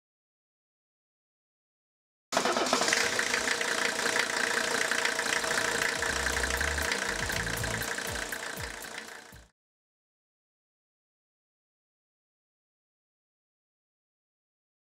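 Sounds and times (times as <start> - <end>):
diesel engine idling with ticking clatter: 2.4 - 9.5.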